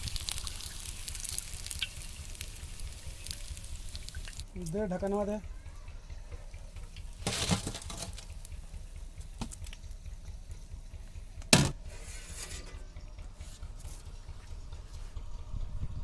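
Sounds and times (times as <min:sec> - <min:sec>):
low steady rumble: 0:00.0 - 0:16.0
steel utensils clanking: 0:07.2 - 0:08.4.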